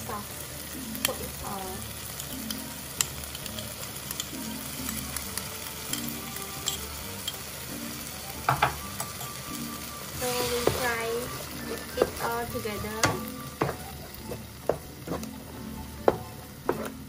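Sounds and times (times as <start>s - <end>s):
onion and tomato sizzling in a pan: 0.0s - 17.0s
spoon clicking on a pan: 5.9s - 7.4s.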